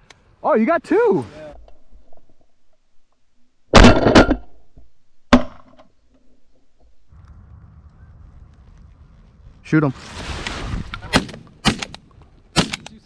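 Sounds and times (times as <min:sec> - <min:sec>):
shotgun blasts: 0:11.0 - 0:13.0.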